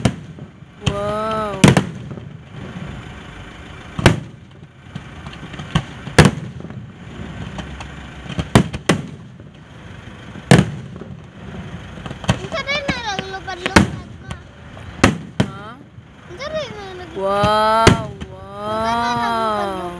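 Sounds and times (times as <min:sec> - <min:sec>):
fireworks shells bangs: 0:00.0 - 0:02.5, 0:04.0 - 0:09.7
constant noisy background: 0:00.0 - 0:19.9.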